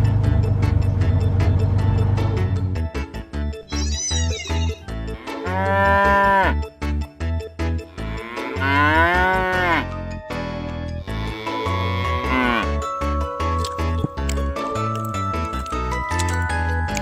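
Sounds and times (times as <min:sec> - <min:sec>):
cow mooing: 0:05.1 - 0:06.6, 0:08.0 - 0:09.9, 0:11.1 - 0:12.8.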